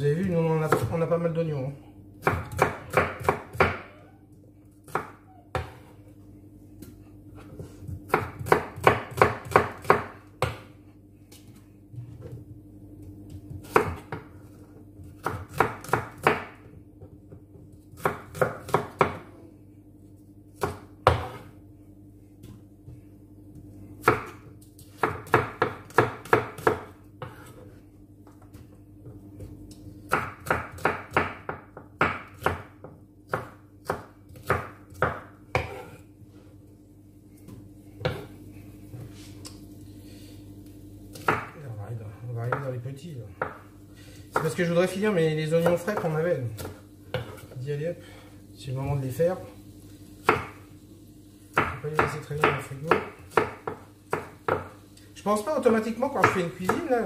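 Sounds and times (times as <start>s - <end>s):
faint steady hum: 0.0s - 57.0s
knife chopping on wooden board: 2.2s - 3.9s, 4.8s - 5.9s, 7.7s - 10.8s, 13.3s - 14.4s, 15.0s - 19.3s, 20.6s - 21.5s, 24.0s - 29.5s, 30.1s - 36.0s, 37.5s - 38.4s, 41.1s - 41.6s, 44.3s - 44.6s, 45.6s - 47.6s, 50.2s - 50.6s, 51.5s - 54.8s, 55.7s - 56.9s.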